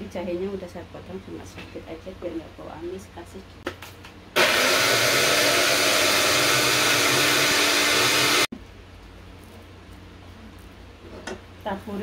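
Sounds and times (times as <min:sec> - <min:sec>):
electric blender grinding: 0:04.4 - 0:08.5.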